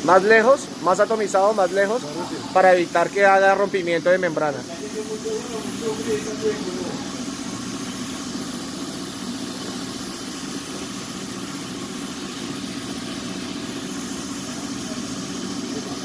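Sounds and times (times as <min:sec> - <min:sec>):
spray gun hissing: 0:00.0 - 0:16.0.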